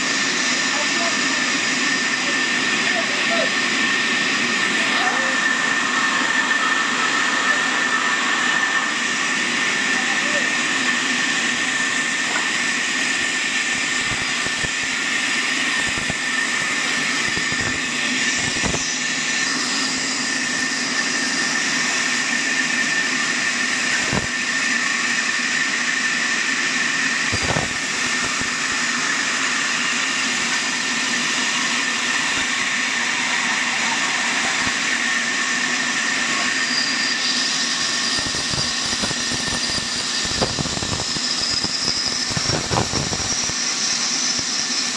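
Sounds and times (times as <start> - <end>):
band saw whining: 0.0 - 44.9
sawdust hissing: 26.9 - 44.9.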